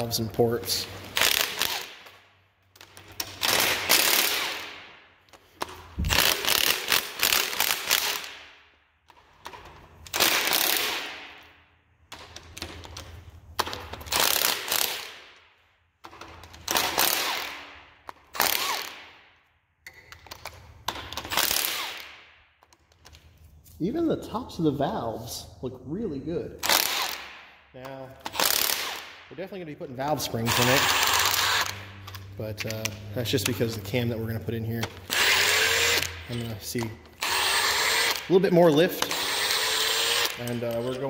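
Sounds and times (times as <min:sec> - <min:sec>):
ratchet wrench clicking: 0:30.5 - 0:32.3.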